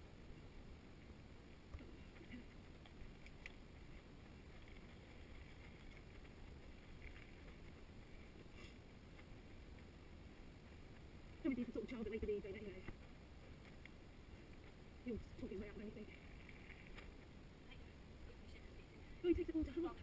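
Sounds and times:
faint clicks: 0:01.7 - 0:04.0.

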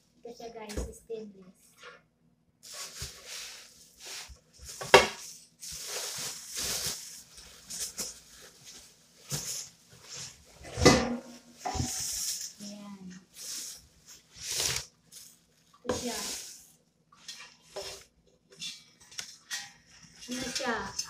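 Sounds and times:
plastic wrapping rustling: 0:02.6 - 0:18.1
metal cookware clinking: 0:19.4 - 0:21.0.

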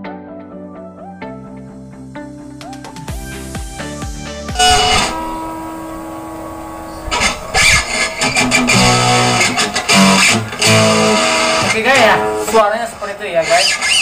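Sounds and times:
picked bass notes: 0:03.1 - 0:12.9
guitar strumming through amplifier: 0:04.5 - 0:14.0.

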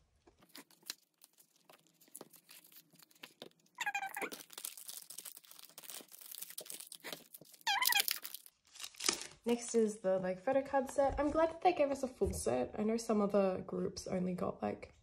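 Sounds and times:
cellophane crinkling: 0:00.3 - 0:09.9
short squeaky sound: 0:07.6 - 0:08.2.

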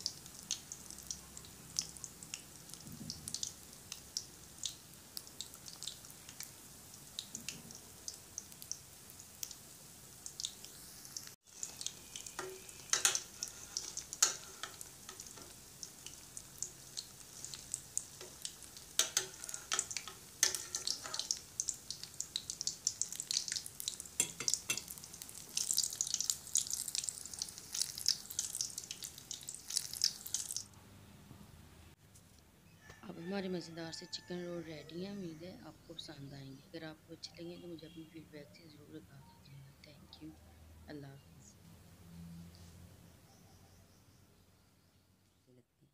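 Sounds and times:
hot oil popping and spitting: 0:00.0 - 0:30.7
deep-frying crackling sizzle: 0:00.0 - 0:30.8.

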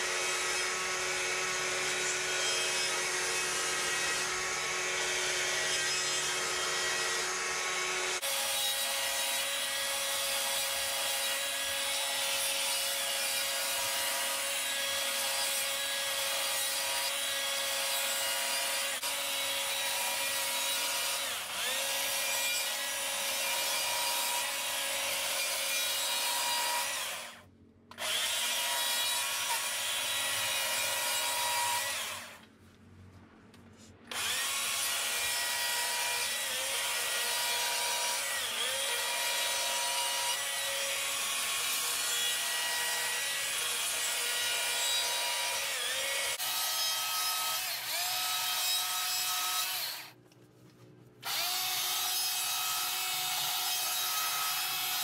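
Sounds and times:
chainsaw cutting wood: 0:00.0 - 0:32.4, 0:34.1 - 0:50.2, 0:51.2 - 0:55.0.

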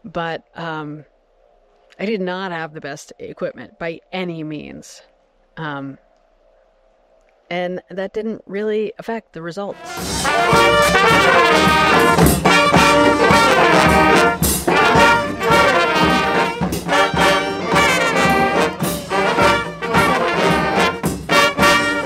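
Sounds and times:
brass band playing: 0:09.8 - 0:22.0
percussion hits: 0:09.8 - 0:22.0.

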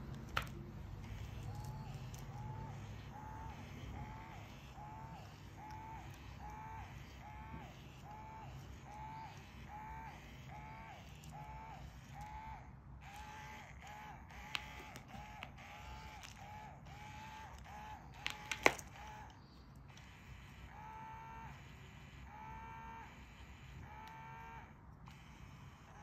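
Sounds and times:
toy squeaky calls: 0:01.0 - 0:20.3.

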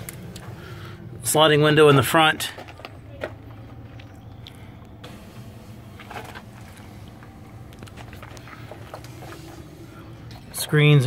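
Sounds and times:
low background hum: 0:00.0 - 0:11.0.

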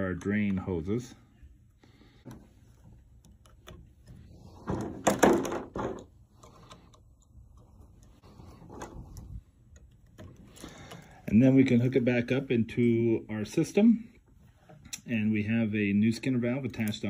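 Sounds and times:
handling and scraping: 0:00.0 - 0:12.6
hose fittings clicking: 0:02.2 - 0:04.3, 0:06.0 - 0:11.4.

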